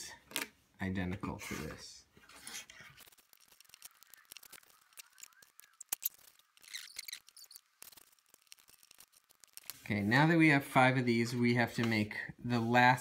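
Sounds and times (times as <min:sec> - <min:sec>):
rustle of plastic pieces: 0:02.2 - 0:10.0.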